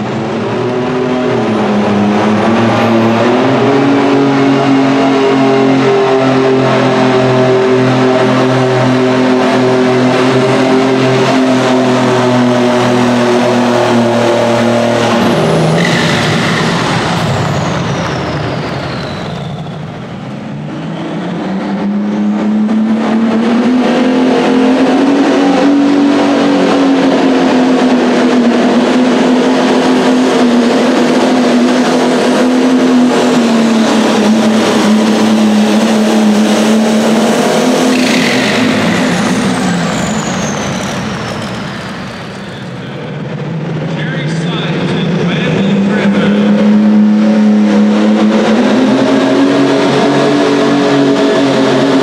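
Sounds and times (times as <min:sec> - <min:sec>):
tractor engine at full throttle: 0:00.0 - 0:52.0
high whine falling in pitch: 0:29.6 - 0:51.3.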